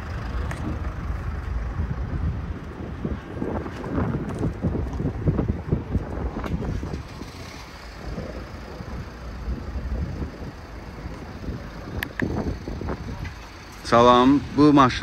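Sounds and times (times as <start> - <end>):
wind buffeting microphone: 0.0 - 13.7.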